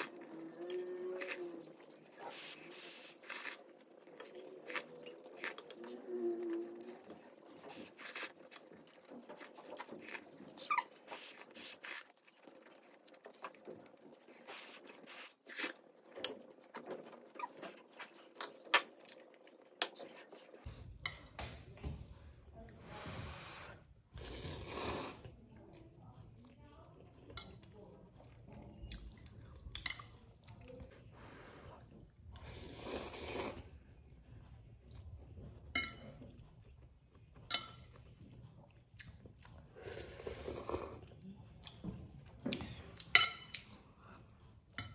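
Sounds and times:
chewing and slurping noodles: 0.0 - 20.7, 31.4 - 44.7.

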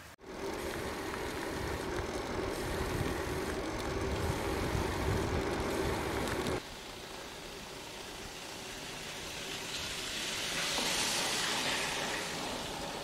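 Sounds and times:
bicycle tyre noise on asphalt: 0.0 - 13.0
steady hiss: 0.0 - 13.0
wind buffeting microphone: 0.3 - 6.6.

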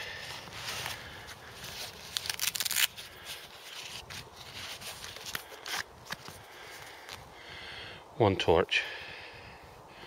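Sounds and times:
fabric and strap rasping: 0.3 - 6.4.

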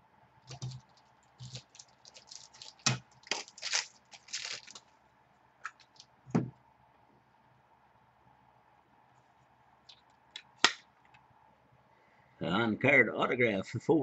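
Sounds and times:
card packaging crinkling and clicking: 0.4 - 4.9, 5.6 - 6.1.

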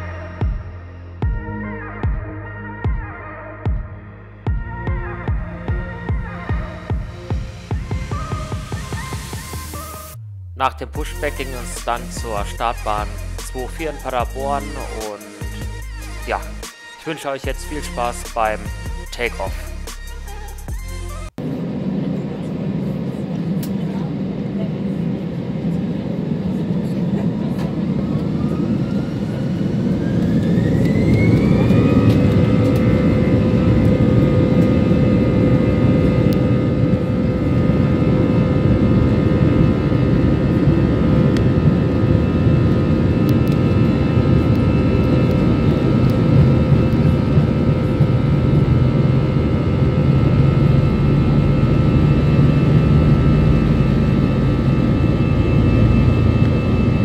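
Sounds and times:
aircraft rumble on takeoff: 4.5 - 16.6, 17.6 - 57.0
jet engines spooling up: 19.3 - 57.0.

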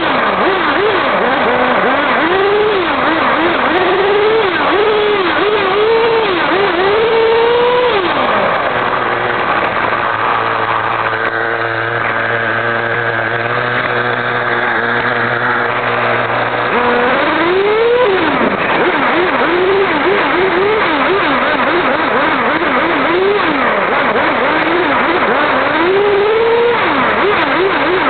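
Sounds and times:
rc car motor: 0.0 - 28.0.

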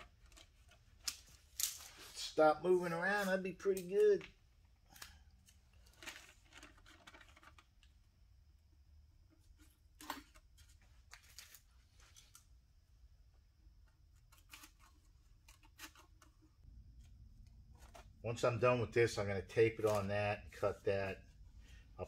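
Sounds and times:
paper rustling: 5.8 - 7.6, 17.0 - 18.2, 19.8 - 20.8.

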